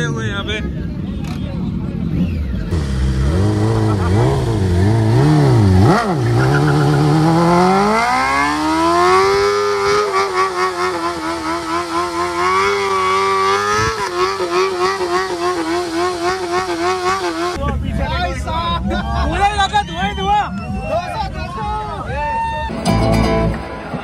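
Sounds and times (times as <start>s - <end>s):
motorcycle engine revving: 2.0s - 17.6s.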